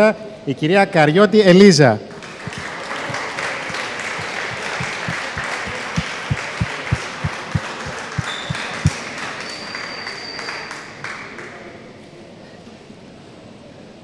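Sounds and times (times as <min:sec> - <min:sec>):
audience applauding: 0:02.2 - 0:09.8.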